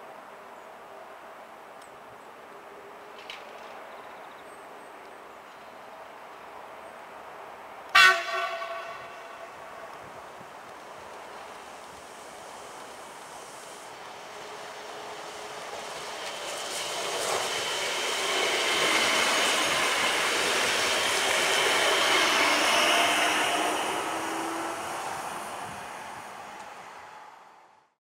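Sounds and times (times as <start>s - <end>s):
train wheels rushing on rails: 7.9s - 27.8s.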